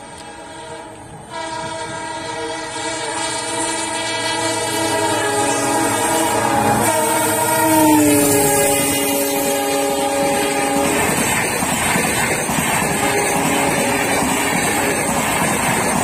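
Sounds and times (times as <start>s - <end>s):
locomotive air horn: 0.0s - 11.6s, 12.8s - 14.8s
train wheels rumbling on rails: 0.0s - 16.0s.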